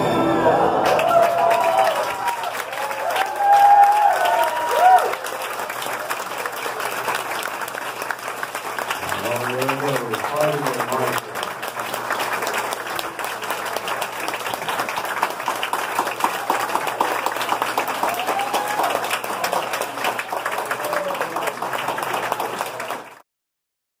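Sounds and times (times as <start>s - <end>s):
audience applauding: 0.0s - 23.2s.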